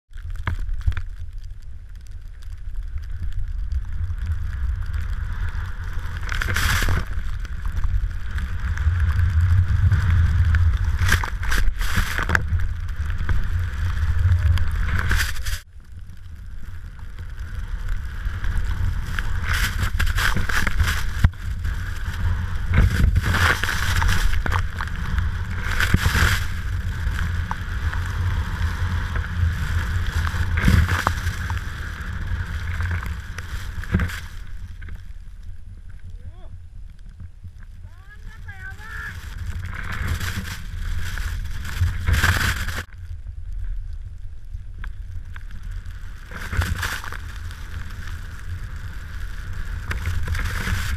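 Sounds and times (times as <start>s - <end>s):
wind buffeting microphone: 17.1s - 34.8s
hissing snow spray: 17.4s - 34.7s.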